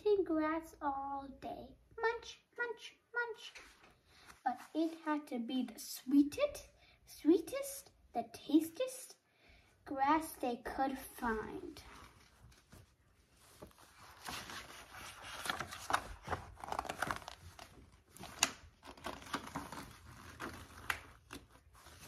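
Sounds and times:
book pages rustling: 3.5s - 5.0s, 11.5s - 22.0s
paper snap: 20.4s - 21.5s.

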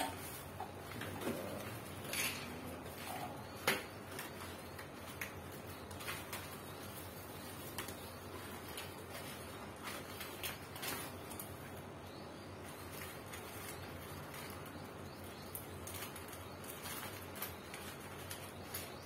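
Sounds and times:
plastic wrapping crinkling: 0.0s - 19.0s.

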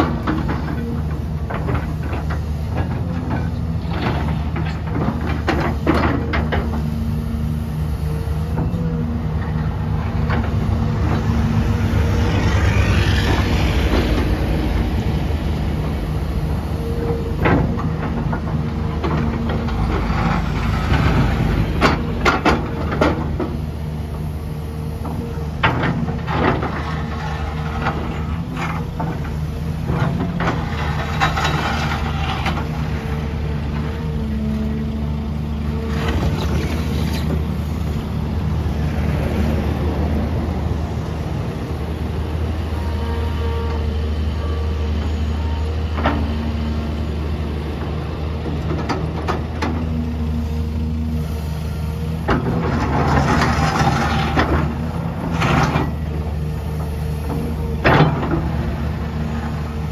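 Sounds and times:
excavator diesel engine running: 0.0s - 59.9s
digging clanks and rattles: 25.1s - 33.9s, 52.2s - 56.5s.

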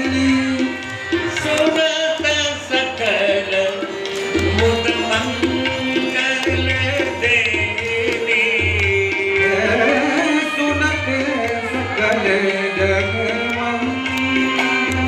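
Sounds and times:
devotional singing over loudspeaker: 0.0s - 15.0s
tabla beat: 0.0s - 15.0s.

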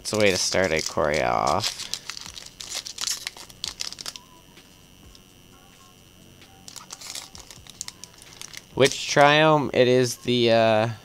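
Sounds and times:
foil wrapper crinkling and tearing: 0.0s - 4.4s, 6.7s - 9.4s.

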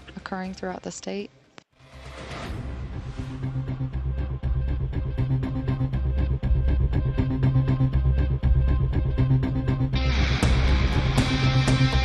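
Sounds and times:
electronic music with steady beat: 3.6s - 12.0s.

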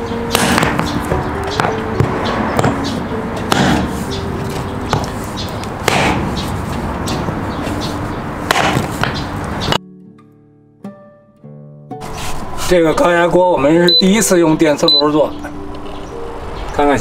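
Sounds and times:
hatchet chopping bone: 0.3s - 2.8s, 3.5s - 4.0s, 4.9s - 5.1s, 5.8s - 6.4s, 8.5s - 9.2s.

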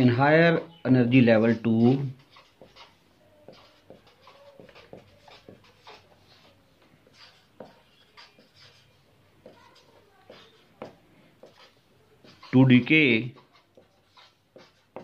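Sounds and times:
marker squeaking on whiteboard: 0.0s - 15.0s.

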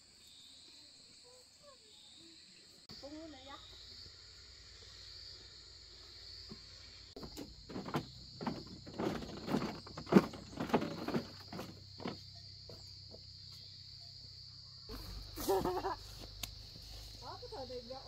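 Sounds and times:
insects chirring: 0.0s - 18.0s
knocks and rustles: 6.4s - 13.4s.

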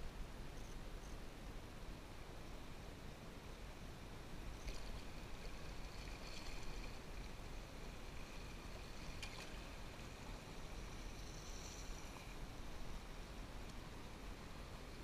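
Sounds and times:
river water splashing along a hull: 3.2s - 15.0s.

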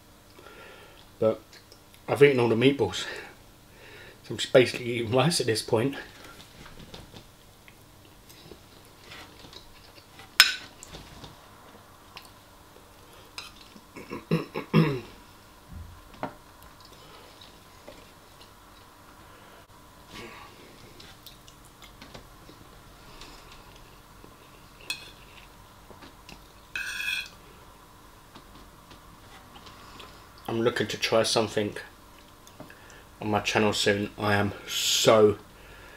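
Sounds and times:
metal spoon scraping ceramic bowl: 26.8s - 27.3s.

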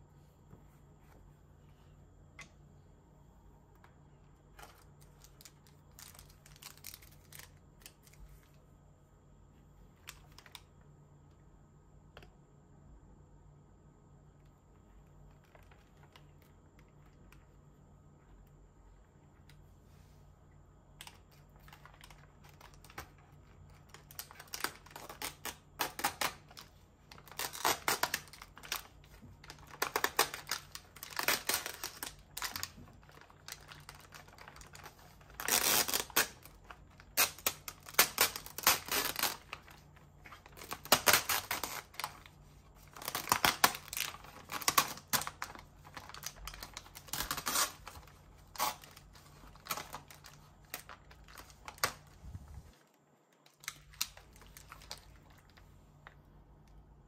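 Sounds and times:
plastic film crackling: 4.6s - 8.5s, 21.0s - 52.8s, 53.4s - 56.1s.

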